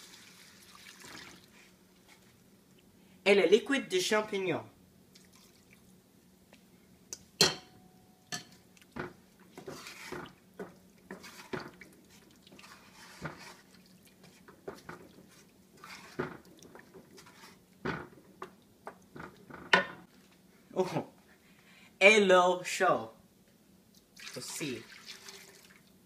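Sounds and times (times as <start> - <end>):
spoon scraping and knocking pan: 7.4 - 11.8, 12.5 - 20.1
wooden spoon stirring sauce: 8.5 - 19.7.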